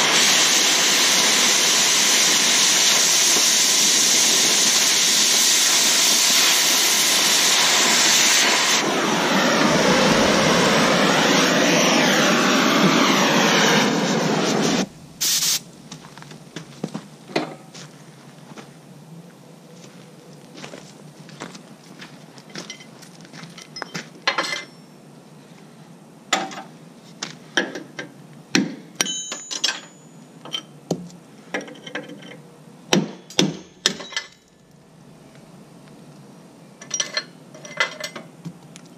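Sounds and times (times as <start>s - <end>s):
cutting torch hissing: 0.0s - 15.7s
hammer striking steel: 28.6s - 30.1s, 32.9s - 34.4s.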